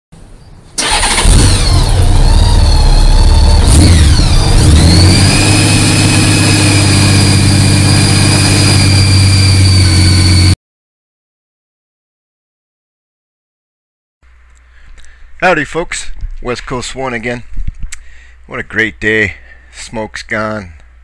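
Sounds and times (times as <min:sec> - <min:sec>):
vehicle engine revving and idling: 0:00.8 - 0:10.6.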